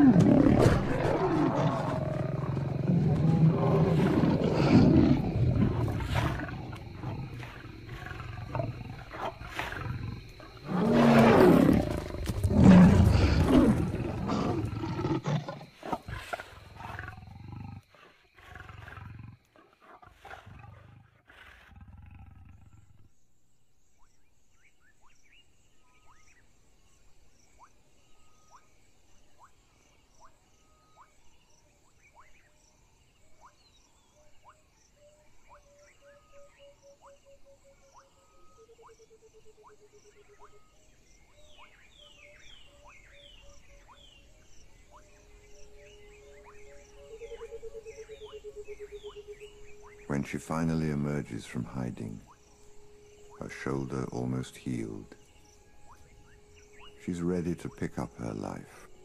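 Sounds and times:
lions roaring: 0.0 - 23.0
chirping insects: 0.0 - 59.0.

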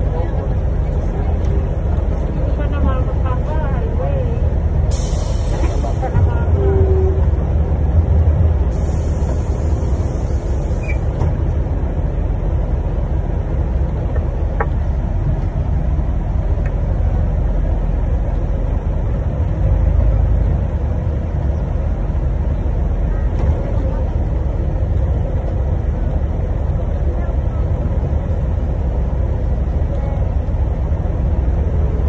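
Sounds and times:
road noise: 0.0 - 32.0
vehicle engine rumble: 0.0 - 32.0.

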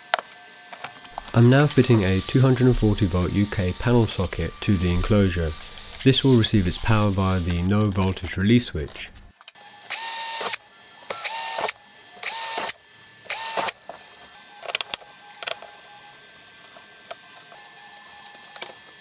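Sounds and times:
cordless drill whining: 1.2 - 7.8, 9.9 - 13.8.

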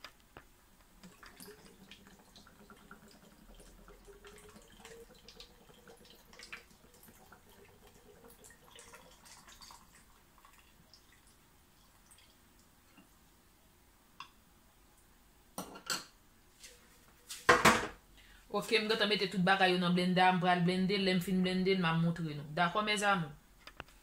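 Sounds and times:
small drips and clicks: 0.0 - 13.2
milk pouring into blender jar: 1.0 - 12.4.

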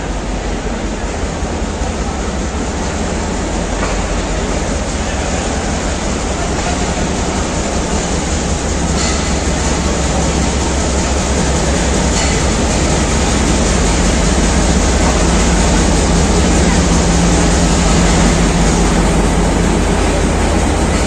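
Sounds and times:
diesel locomotive engine rumble: 0.0 - 21.0.

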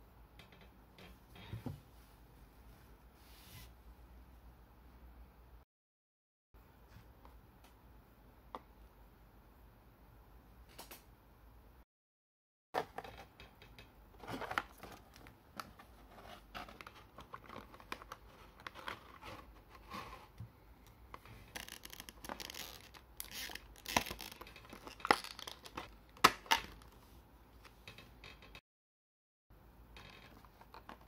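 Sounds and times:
plastic and cardboard crinkling: 14.2 - 20.4, 21.2 - 27.0.

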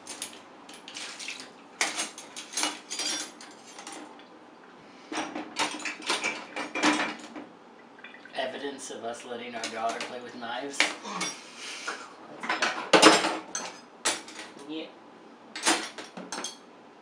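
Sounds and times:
cutlery clinking on wire rack: 1.8 - 4.1, 12.4 - 14.6, 15.6 - 16.6.

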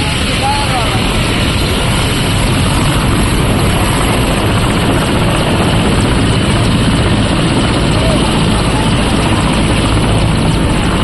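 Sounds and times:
helicopter rotor and turbine: 0.0 - 11.0.

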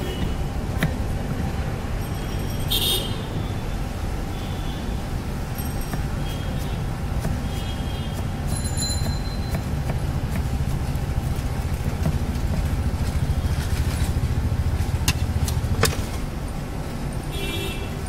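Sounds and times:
knife chopping on wooden board: 0.1 - 1.0, 5.8 - 12.9
engine idling rumble: 9.7 - 17.2.

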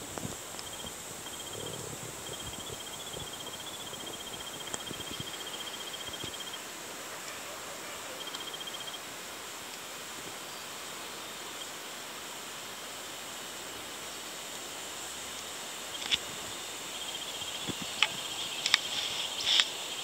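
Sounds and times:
steady high hiss: 0.0 - 20.0
insect trilling: 0.4 - 9.6, 15.8 - 20.0.

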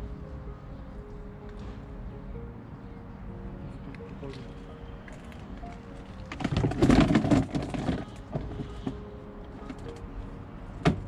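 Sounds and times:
plastic pet carrier clattering: 6.3 - 8.2.

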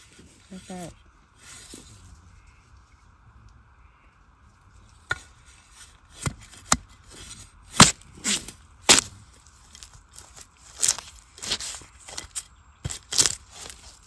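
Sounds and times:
metal blade chopping into soil: 6.2 - 9.2, 9.8 - 14.0.

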